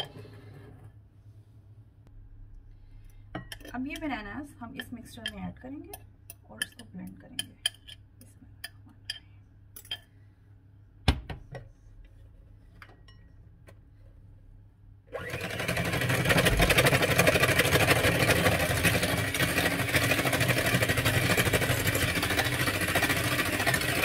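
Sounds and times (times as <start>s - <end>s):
electric hand mixer whirring: 15.1s - 24.0s.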